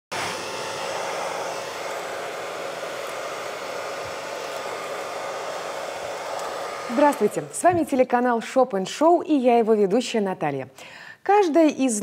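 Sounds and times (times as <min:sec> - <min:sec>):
hair dryer blowing air: 0:00.0 - 0:08.6.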